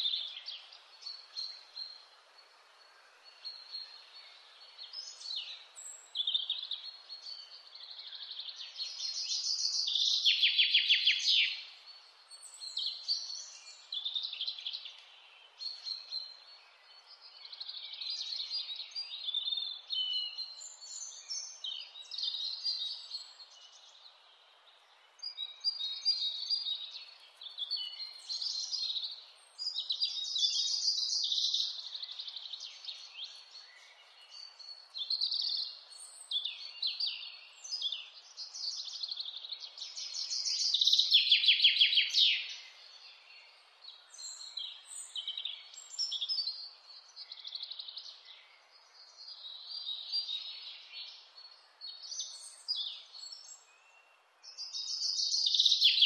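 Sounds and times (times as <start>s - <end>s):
faint steady hiss: 0.0s - 56.0s
songbirds singing trills: 0.0s - 56.0s.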